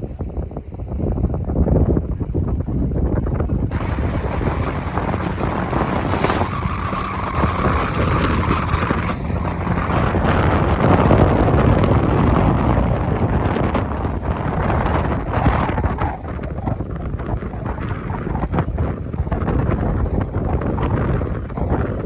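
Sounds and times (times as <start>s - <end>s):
strong wind on microphone: 0.0s - 22.0s
steady higher tone: 3.7s - 17.8s.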